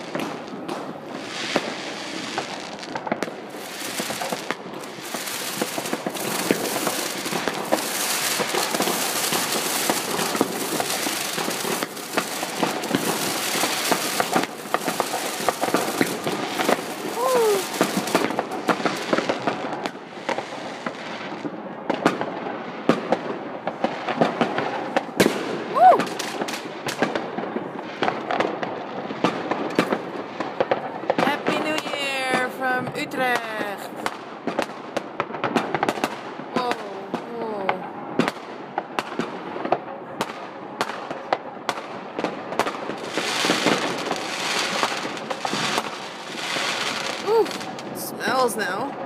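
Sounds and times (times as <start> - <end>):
fireworks bangs and crackling: 0.0 - 49.0
fireworks hiss: 1.1 - 19.4.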